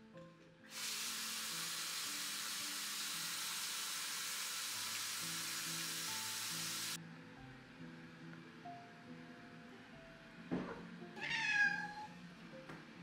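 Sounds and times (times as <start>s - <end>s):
sink faucet running: 0.7s - 7.0s.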